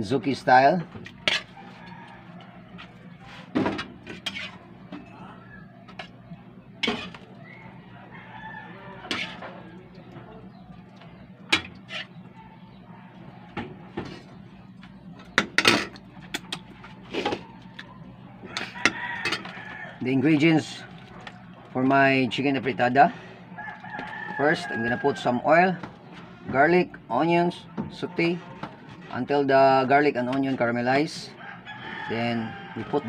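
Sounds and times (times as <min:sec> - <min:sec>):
steady low hum: 0:00.0 - 0:24.2
metal spoon scraping a pan: 0:01.2 - 0:01.8, 0:02.8 - 0:04.7, 0:06.8 - 0:07.2, 0:09.0 - 0:09.6, 0:11.5 - 0:12.2.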